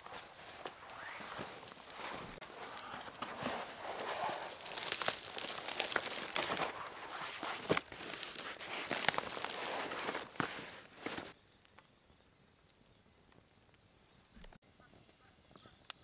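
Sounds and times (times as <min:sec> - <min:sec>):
dry material crinkling and crackling: 0:00.0 - 0:11.9.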